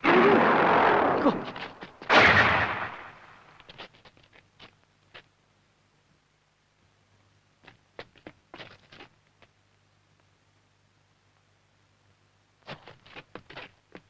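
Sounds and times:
loud blast sound effects: 2.1s - 3.4s.

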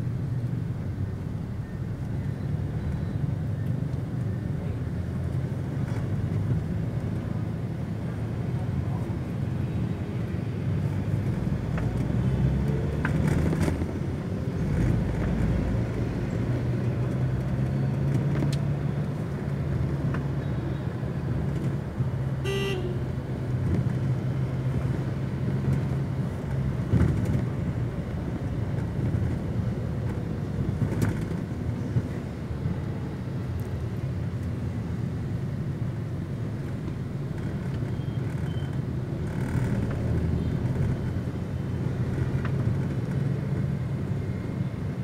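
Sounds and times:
horn beep: 22.4s - 23.1s.

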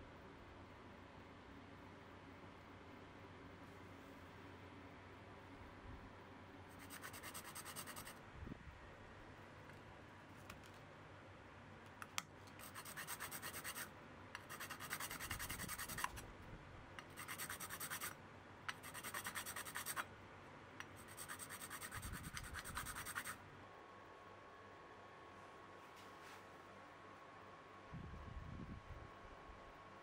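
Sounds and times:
file rasping on metal: 12.6s - 16.2s, 17.2s - 18.1s, 18.7s - 20.0s, 21.0s - 23.4s.

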